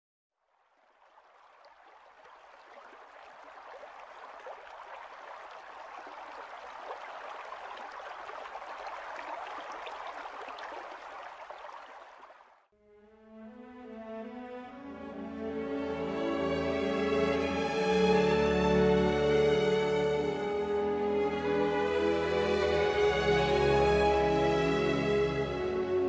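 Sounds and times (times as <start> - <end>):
water splashing and trickling: 0.4 - 12.7.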